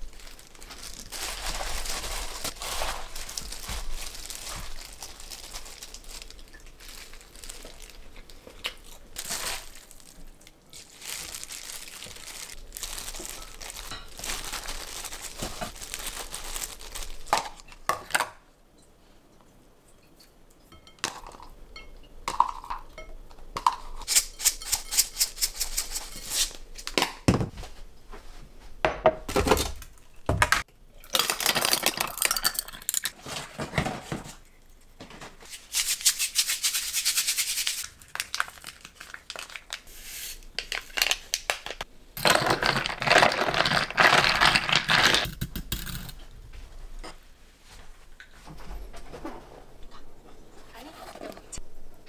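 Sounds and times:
plastic gloves crinkling wet: 0.0s - 17.9s, 37.5s - 45.3s
snack packaging rustling: 0.0s - 18.2s, 37.7s - 45.3s
dishes clinking: 19.9s - 25.1s.

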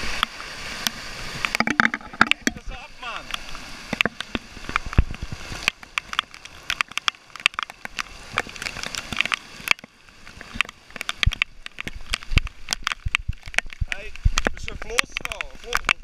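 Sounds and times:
floodwater gushing from drain: 0.0s - 16.0s
heavy rain: 0.0s - 16.0s
raindrops tapping on phone microphone: 0.0s - 16.0s.

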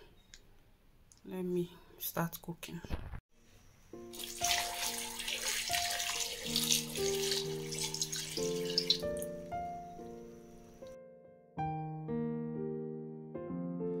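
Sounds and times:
soft piano music: 3.8s - 14.0s
water pouring into metal pot: 4.1s - 9.5s.

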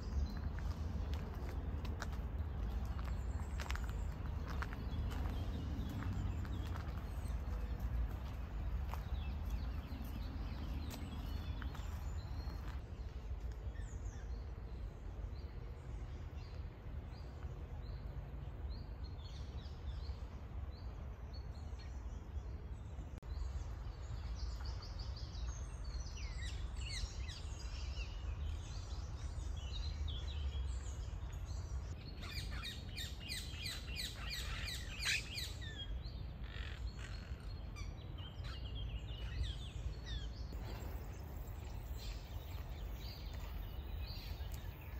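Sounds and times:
steady low rumble: 0.0s - 26.3s
birds chirping and calling: 31.8s - 41.1s.

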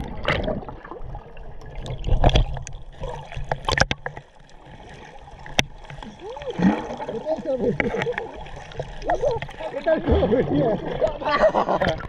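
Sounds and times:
water gurgling underwater: 0.0s - 12.0s
sharp clicks and knocks: 3.5s - 4.2s.

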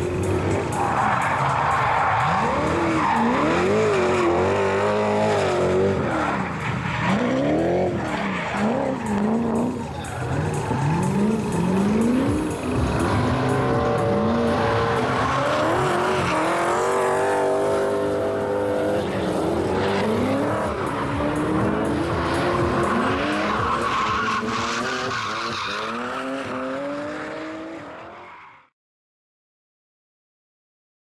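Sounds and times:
car engine revving hard: 8.6s - 27.9s.

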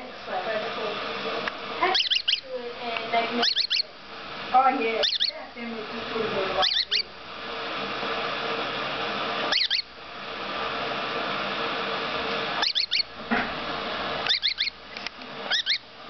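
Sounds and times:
steady hiss: 0.0s - 16.0s
parrot chicks squeaking: 1.8s - 4.0s, 4.7s - 7.2s, 9.4s - 9.9s, 12.5s - 13.2s, 14.2s - 15.9s.

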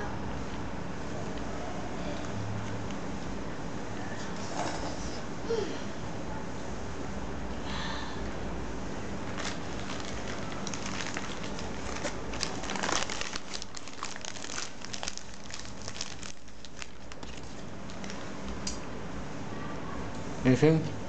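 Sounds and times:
low steady hum: 0.0s - 21.0s
plastic bags crinkling: 9.2s - 18.7s.

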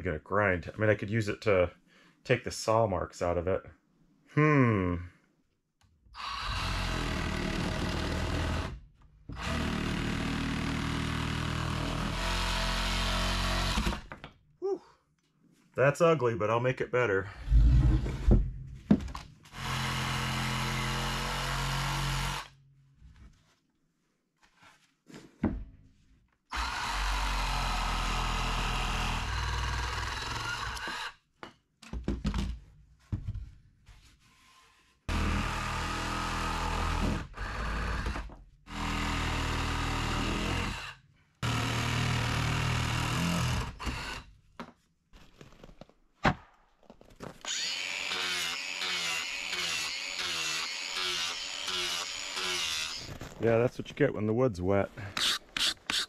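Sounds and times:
reciprocating saw cutting wood: 47.5s - 53.2s, 55.1s - 56.0s
grinder sanding wood: 55.2s - 56.0s.

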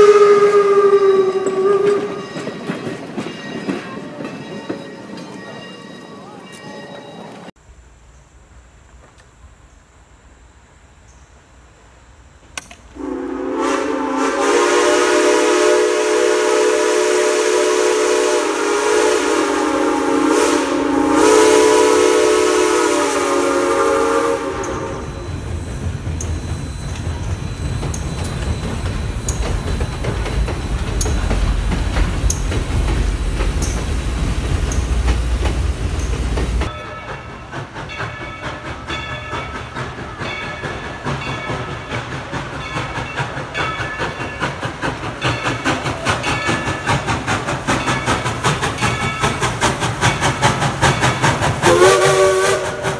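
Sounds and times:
steam locomotive chime whistle: 0.0s - 7.5s, 13.0s - 52.9s
train rumbling across steel bridge: 0.0s - 52.9s
train wheel clicks: 12.4s - 13.0s, 24.6s - 52.9s.

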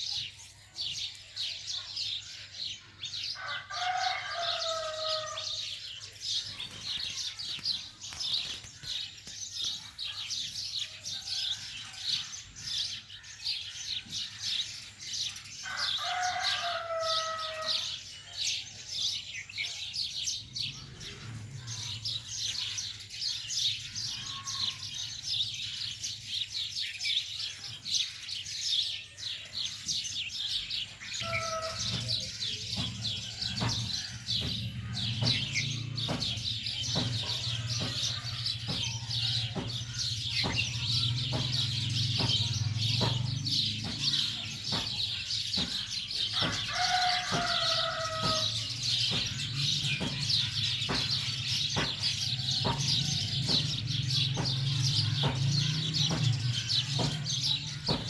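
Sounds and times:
small birds chirping: 0.0s - 58.0s
drawn-out bird call: 30.4s - 58.0s.

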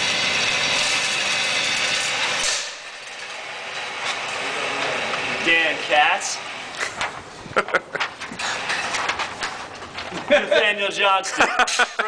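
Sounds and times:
motorized target carrier whirring: 0.0s - 10.1s.

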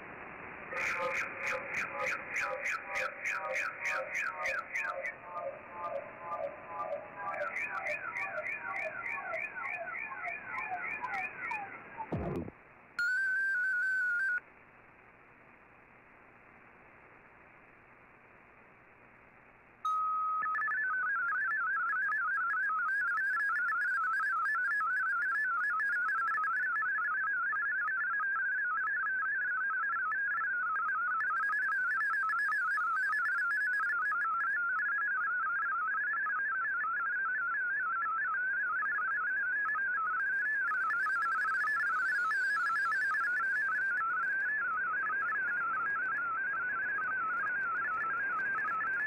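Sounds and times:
faint radio static: 0.0s - 13.0s, 14.3s - 20.0s, 20.7s - 49.0s
warbling digital data tones: 0.7s - 14.4s, 19.9s - 49.0s.

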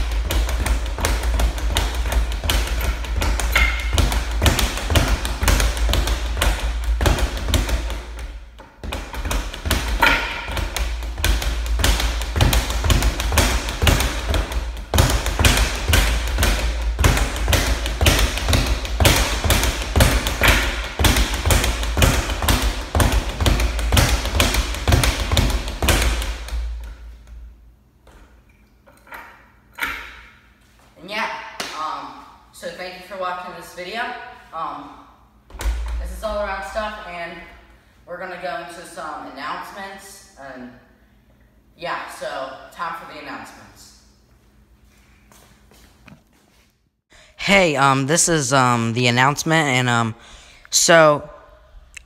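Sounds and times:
speed bag being punched: 0.0s - 27.0s.

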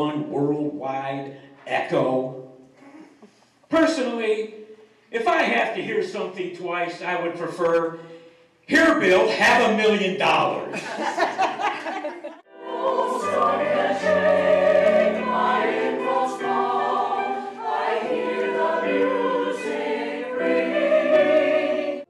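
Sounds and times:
man speaking: 3.7s - 8.0s, 8.6s - 11.0s
mixed choir singing: 12.5s - 22.0s.

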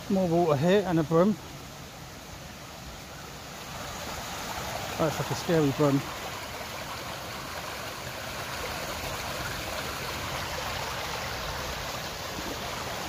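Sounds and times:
fast-flowing stream water rushing: 0.0s - 13.0s.

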